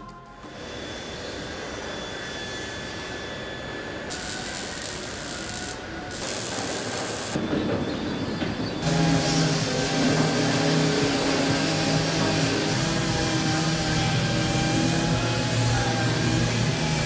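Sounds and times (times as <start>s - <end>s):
loud low hum: 0.0s - 17.0s
welding hiss: 2.6s - 8.0s, 8.8s - 17.0s
steady mechanical din: 4.6s - 17.0s.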